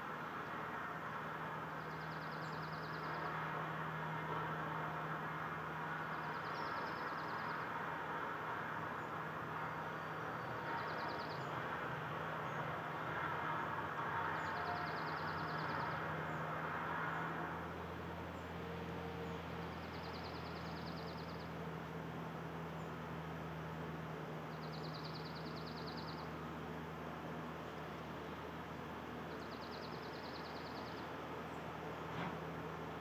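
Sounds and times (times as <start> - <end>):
motor vehicle hum: 0.0 - 33.0.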